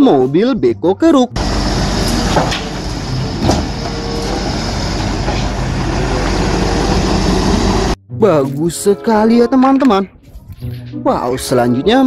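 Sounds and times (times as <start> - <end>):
excavator diesel engine running: 1.4 - 8.0.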